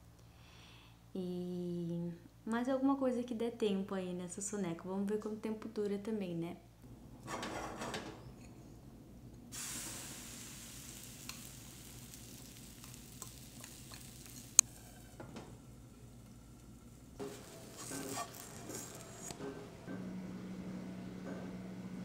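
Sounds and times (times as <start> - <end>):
batter sizzling in a pan: 9.5 - 16.2, 17.0 - 19.3.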